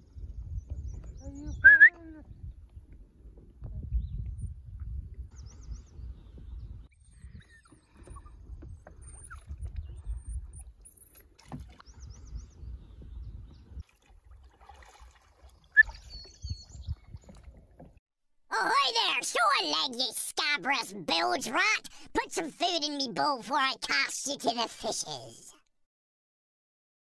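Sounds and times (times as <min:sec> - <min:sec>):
paddle swishing water: 0:07.4 - 0:12.4, 0:13.0 - 0:18.0.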